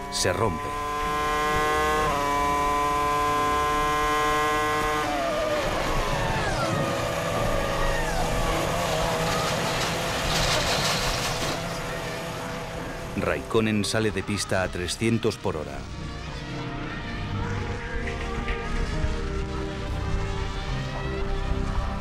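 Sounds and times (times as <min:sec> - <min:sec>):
race car engine revving: 0:00.0 - 0:13.6.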